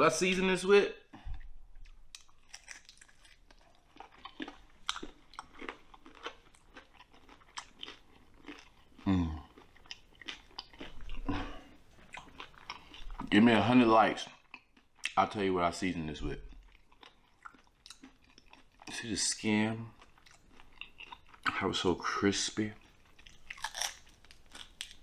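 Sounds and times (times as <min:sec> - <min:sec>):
person chewing meat: 0:01.1 - 0:13.3, 0:14.3 - 0:15.2, 0:16.4 - 0:19.0, 0:19.9 - 0:21.6, 0:22.8 - 0:25.0.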